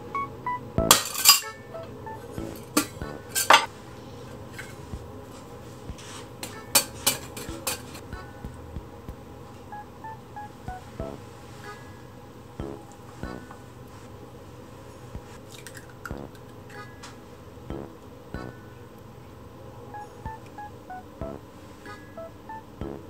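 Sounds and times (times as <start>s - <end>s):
utensils clinking on metal: 0.9s - 1.5s.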